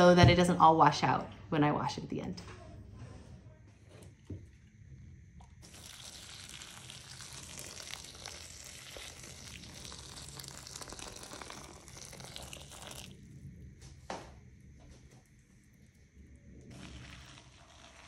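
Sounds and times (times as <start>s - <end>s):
crackling hissing pour into container: 5.4s - 13.6s, 15.3s - 18.0s.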